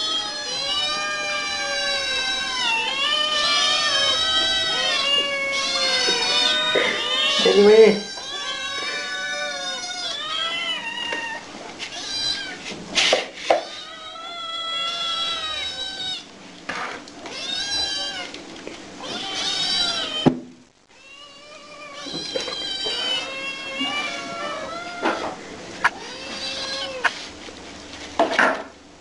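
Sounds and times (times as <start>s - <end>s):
kittens meowing: 0.0s - 12.8s, 13.6s - 16.3s, 17.2s - 18.4s, 19.0s - 20.3s, 20.9s - 27.2s.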